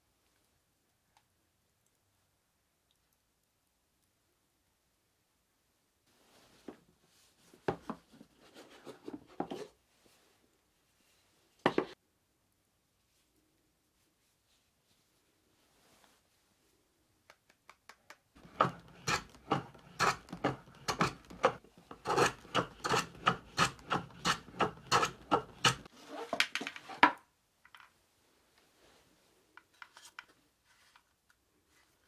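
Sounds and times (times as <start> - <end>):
rasping shaving strokes on blade: 18.4 - 25.9.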